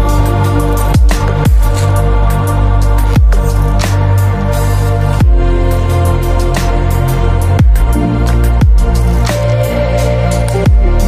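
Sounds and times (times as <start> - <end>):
deep kick drum: 0.0 - 4.2, 5.2 - 5.7, 6.4 - 9.2, 10.7 - 11.0
sustained synth chords: 0.0 - 11.0.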